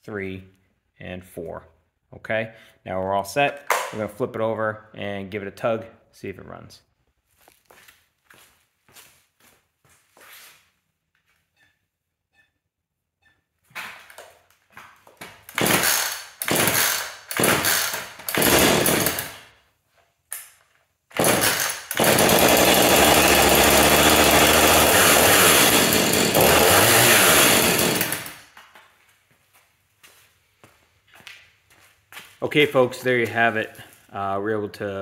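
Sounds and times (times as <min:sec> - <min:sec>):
chainsaw engine running: 0:15.5 - 0:19.4, 0:21.2 - 0:28.4.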